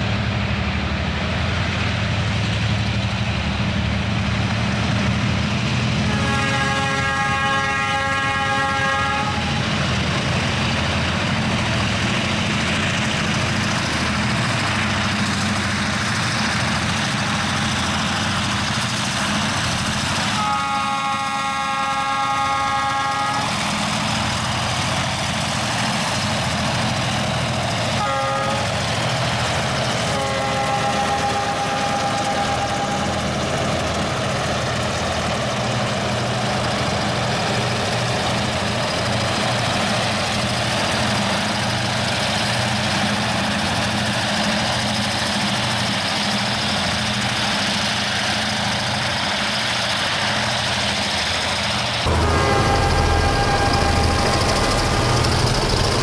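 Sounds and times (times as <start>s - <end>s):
locomotive engines rumbling: 0.0s - 56.0s
multi-tone air horn: 6.1s - 9.6s, 20.4s - 23.5s, 28.0s - 28.7s, 30.1s - 33.1s, 52.1s - 54.7s.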